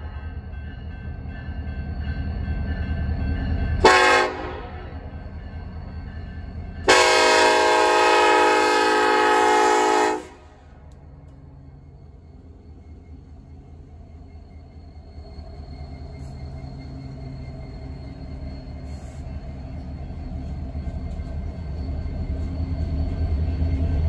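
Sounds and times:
locomotive air horn blasts: 3.8s - 4.9s, 6.9s - 10.6s.

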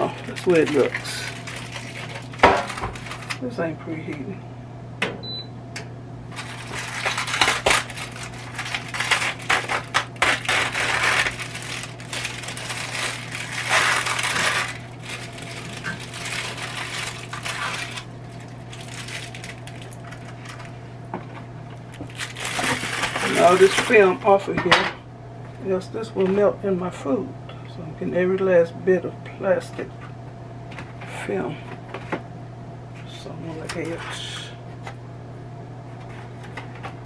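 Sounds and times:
plastic film crinkling and tearing: 0.0s - 3.4s, 6.3s - 20.8s, 21.8s - 24.3s.

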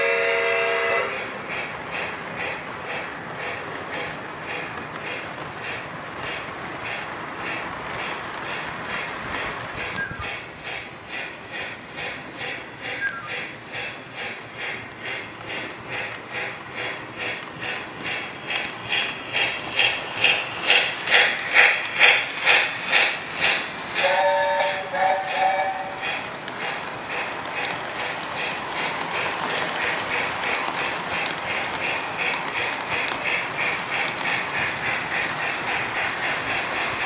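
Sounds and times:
toy train whistle blasts: 0.0s - 1.2s, 24.0s - 26.0s
model train clattering on track: 1.1s - 37.0s.

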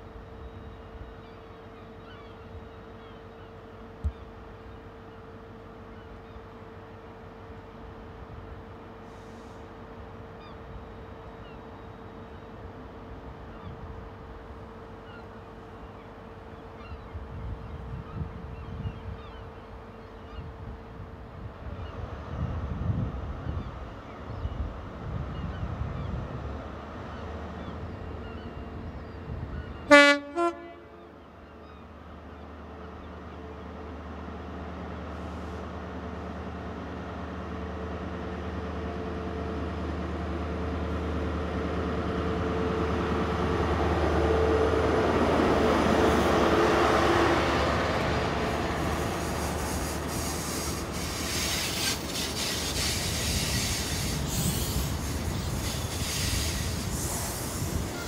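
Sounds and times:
train horn blasts: 29.8s - 31.4s.

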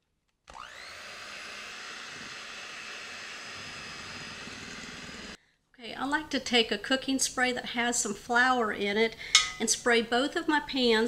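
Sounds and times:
electric hand mixer motor whine: 0.5s - 5.4s.

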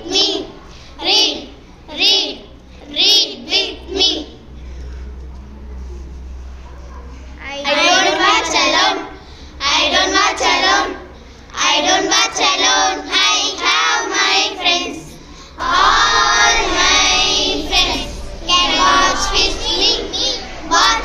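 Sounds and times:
girls singing in unison: 0.0s - 4.4s, 7.7s - 21.0s.

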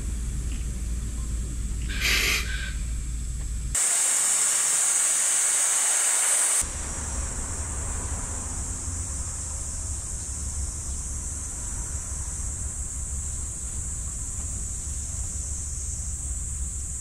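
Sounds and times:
locomotive steam hiss: 0.8s - 3.2s, 3.8s - 17.0s.

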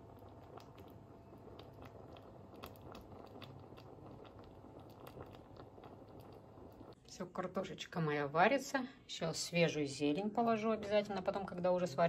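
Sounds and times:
stew simmering with crackles: 0.0s - 7.6s.

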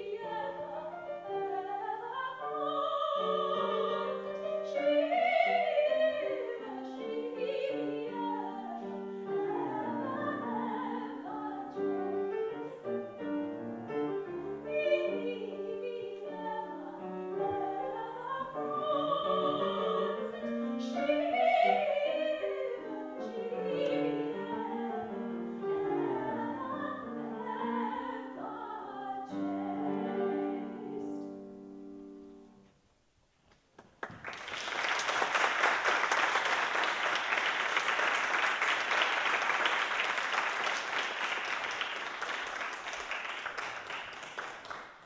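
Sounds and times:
piano accompaniment: 0.0s - 32.6s
soprano singing: 0.0s - 32.6s
audience applauding: 33.8s - 45.0s.

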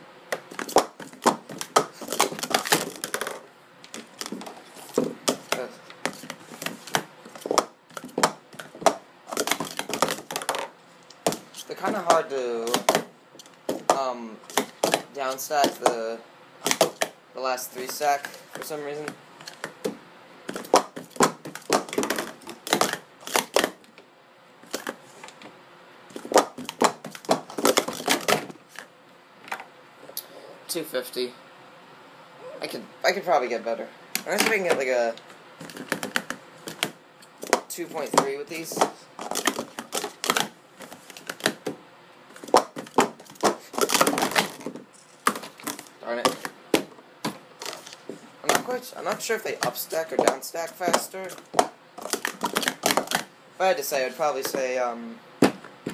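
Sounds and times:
plastic stacking cups clacking: 0.3s - 16.0s, 16.6s - 17.2s, 17.8s - 23.9s, 24.6s - 25.0s, 26.1s - 28.8s, 35.6s - 41.8s, 42.4s - 53.3s.

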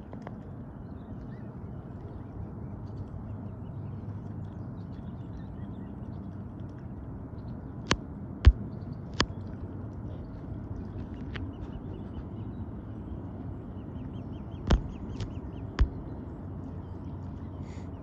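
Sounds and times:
low rumble: 0.0s - 18.0s.

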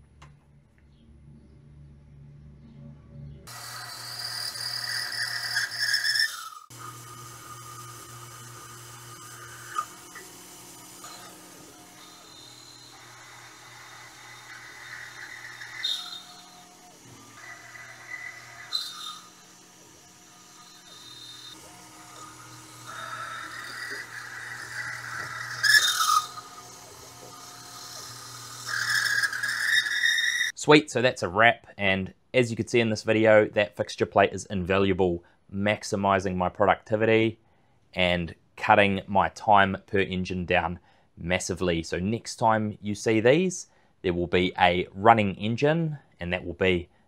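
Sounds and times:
drill cutting metal: 3.5s - 30.5s
milling machine spindle whine: 3.5s - 30.5s.

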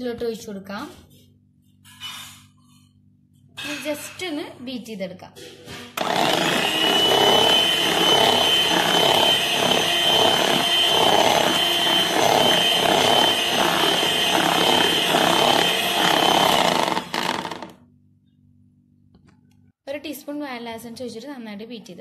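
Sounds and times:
batter sloshing: 6.0s - 17.4s
electric hand mixer whine: 6.0s - 17.8s.

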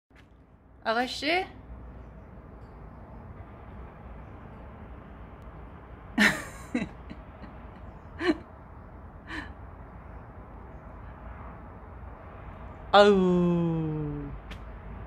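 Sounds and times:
person exclaiming: 13.0s - 14.4s.

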